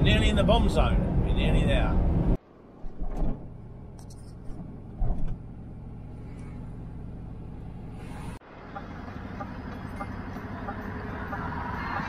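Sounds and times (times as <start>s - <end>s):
road noise: 0.0s - 12.0s
vehicle engine hum: 0.0s - 12.0s.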